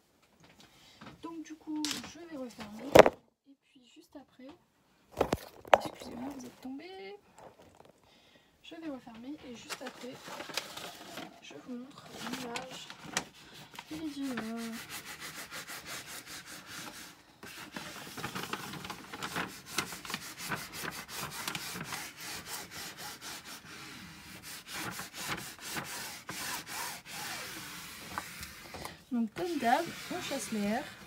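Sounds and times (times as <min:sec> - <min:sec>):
paper sheet crackling and rustling: 0:01.8 - 0:03.2, 0:09.1 - 0:31.0.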